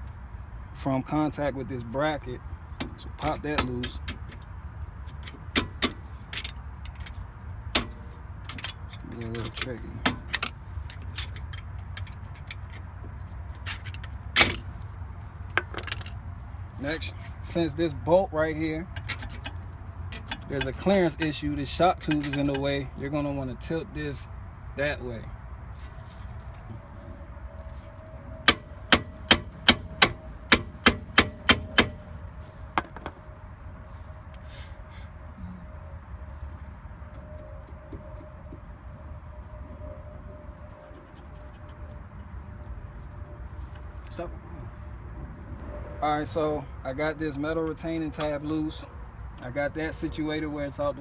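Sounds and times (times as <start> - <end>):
pry tool clinking on metal: 22.0 - 22.7.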